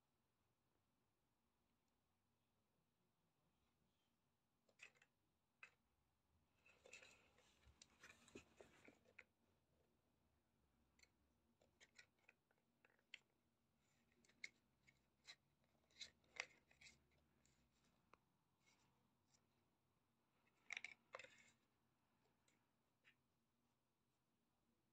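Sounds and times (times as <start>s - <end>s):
rustling: 6.6s - 9.2s.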